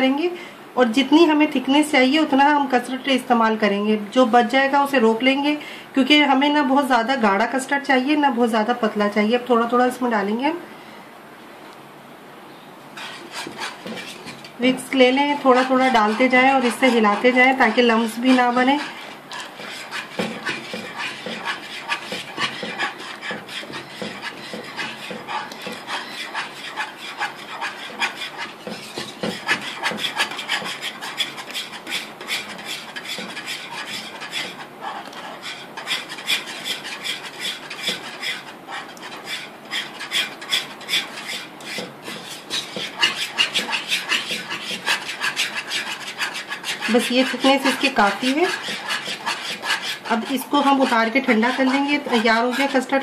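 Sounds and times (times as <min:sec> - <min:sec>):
whisk scraping a steel saucepan: 0:13.0 - 0:53.0.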